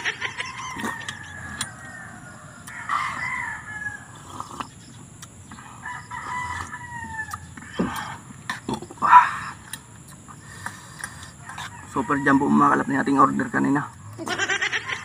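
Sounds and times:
rooster crowing: 0.0s - 4.4s, 5.6s - 7.8s, 11.3s - 13.6s.

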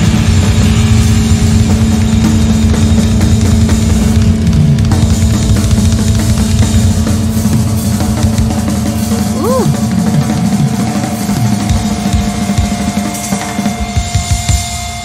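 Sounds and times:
live rock music: 0.0s - 15.0s.

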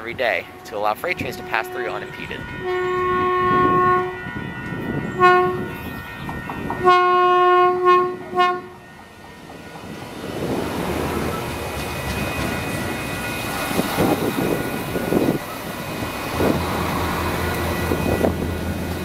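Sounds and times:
railcar rumbling past: 0.0s - 19.0s
train horn blasts: 0.4s - 9.0s.

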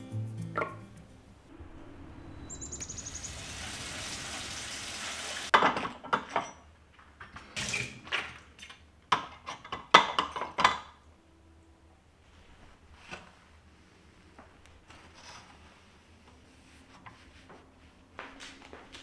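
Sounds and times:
water running: 2.4s - 5.6s.

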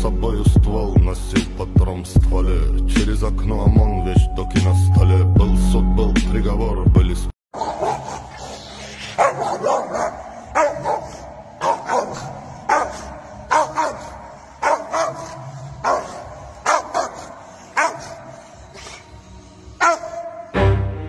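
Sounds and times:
dog barking aggressively: 7.6s - 8.3s, 9.1s - 18.3s, 19.8s - 20.3s.

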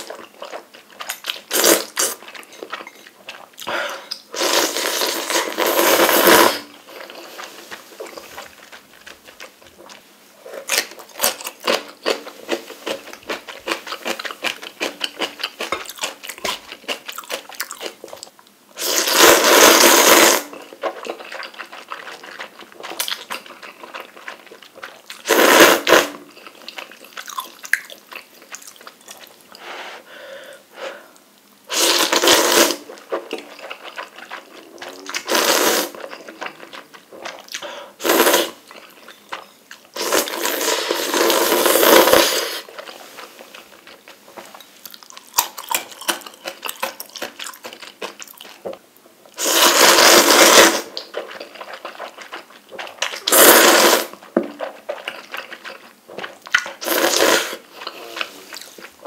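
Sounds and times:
slurping noodles: 4.4s - 8.8s, 18.8s - 23.0s, 25.2s - 26.2s, 31.7s - 33.0s, 33.7s - 36.2s, 38.0s - 38.6s, 40.0s - 43.6s, 49.4s - 55.3s, 56.2s - 58.9s
wet chewing: 20.6s - 25.3s, 26.3s - 29.4s, 32.9s - 37.7s, 50.9s - 53.5s, 54.1s - 57.0s.

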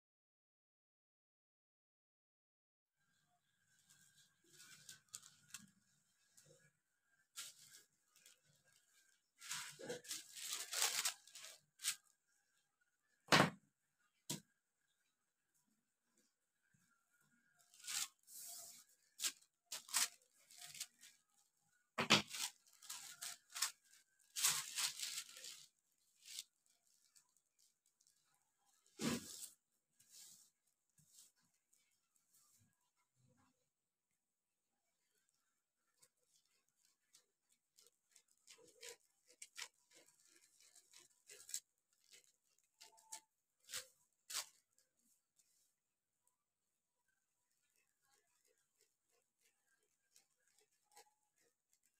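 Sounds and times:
paper crackling and rustling: 3.8s - 12.1s, 17.5s - 21.3s, 22.0s - 31.8s, 35.8s - 45.6s, 47.5s - 51.9s
scissors snipping paper: 36.0s - 44.8s.

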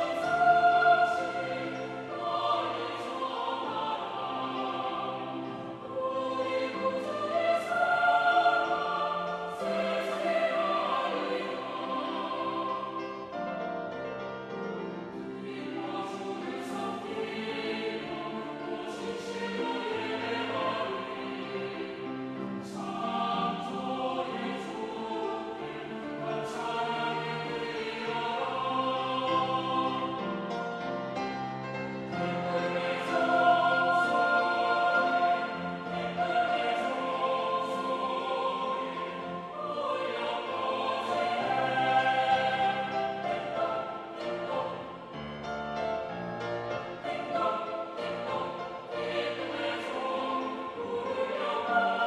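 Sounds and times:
mixed choir singing: 0.0s - 52.0s.

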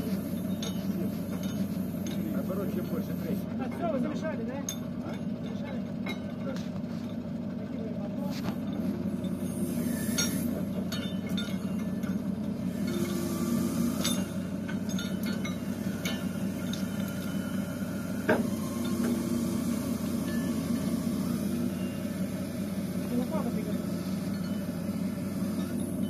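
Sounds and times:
truck engine drone: 0.0s - 26.0s
chains and hooks clinking: 0.2s - 3.1s, 8.6s - 19.1s
sharp metal clank: 8.6s - 12.2s.

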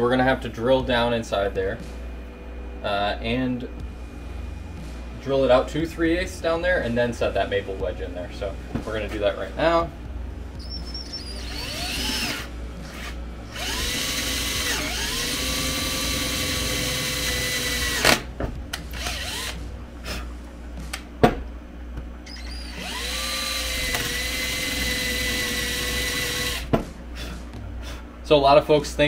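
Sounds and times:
cordless drill whining: 10.6s - 12.5s, 13.5s - 18.2s, 18.9s - 19.6s, 22.3s - 26.7s.

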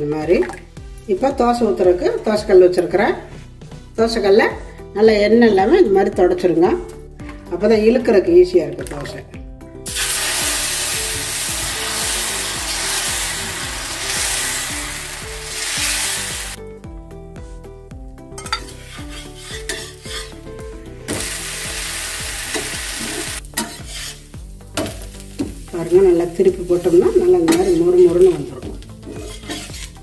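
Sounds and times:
batter sizzling on hot griddle: 9.9s - 16.6s, 18.6s - 20.4s, 21.1s - 26.2s, 28.8s - 30.0s.

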